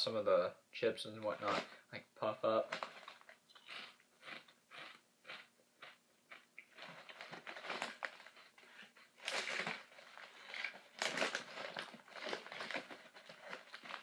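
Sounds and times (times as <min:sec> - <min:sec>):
snack bag crinkling: 0:02.7 - 0:14.0
crunchy chewing of crackers: 0:03.0 - 0:14.0.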